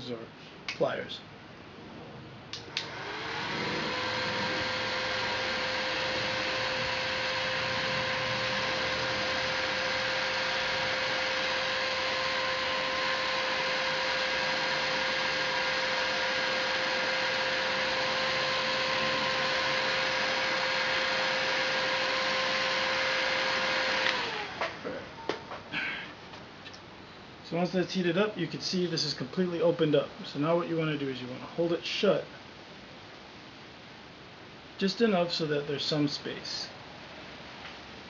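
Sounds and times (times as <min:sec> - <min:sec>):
heat gun blowing air: 0:02.6 - 0:24.7.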